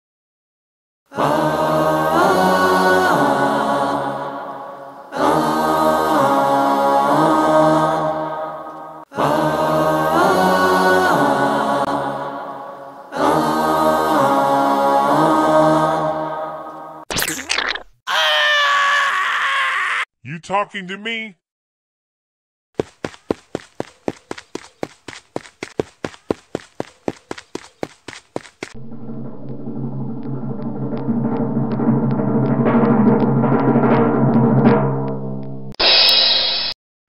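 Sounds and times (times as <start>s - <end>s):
choral chanting: 1.1s - 17.0s.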